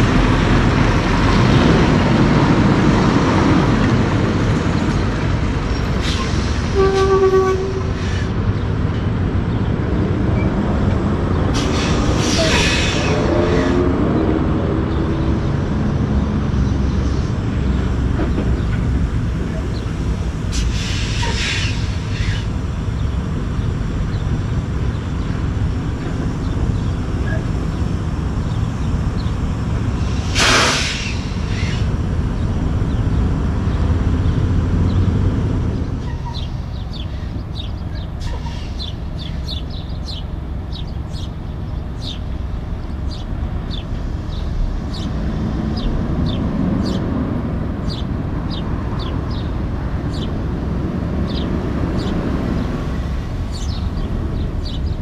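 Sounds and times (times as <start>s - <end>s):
diesel truck engine rumbling: 0.0s - 55.0s
birds chirping: 0.1s - 30.2s, 31.2s - 55.0s
air hiss burst: 11.6s - 13.2s, 20.5s - 22.3s, 30.0s - 31.8s.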